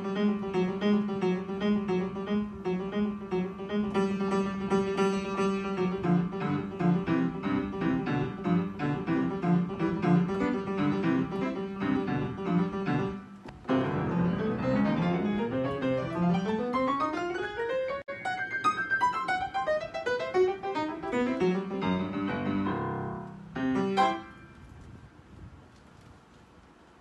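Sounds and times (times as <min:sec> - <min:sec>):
upright piano playing: 0:00.0 - 0:24.7.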